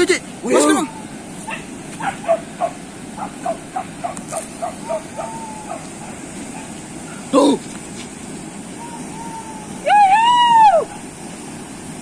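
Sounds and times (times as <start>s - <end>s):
dog yelping: 0.5s - 7.3s
dog whining: 0.6s - 6.7s.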